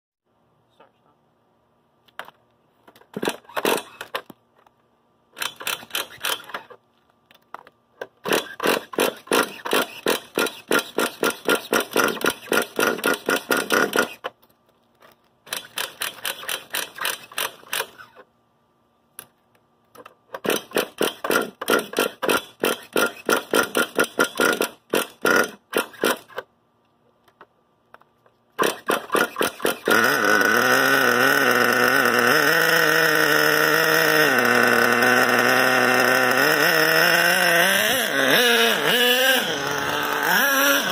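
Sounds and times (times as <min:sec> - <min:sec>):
pull-start cranking: 0:02.9 - 0:04.3, 0:05.4 - 0:06.8, 0:08.0 - 0:14.4, 0:15.0 - 0:18.2, 0:20.0 - 0:26.5, 0:28.6 - 0:40.9
small engine running: 0:05.3 - 0:06.8, 0:08.2 - 0:14.3, 0:15.5 - 0:18.2, 0:20.4 - 0:26.5, 0:28.6 - 0:40.9.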